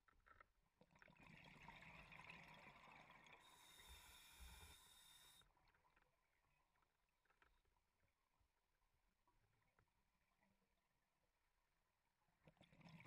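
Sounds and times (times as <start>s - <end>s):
diver breathing through regulator: 3.4s - 5.4s.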